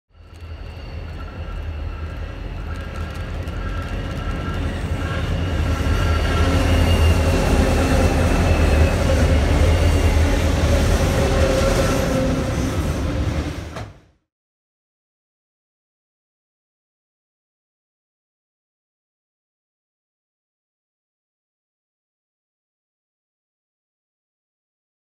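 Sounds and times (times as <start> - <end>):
freight train passing: 0.1 - 14.1.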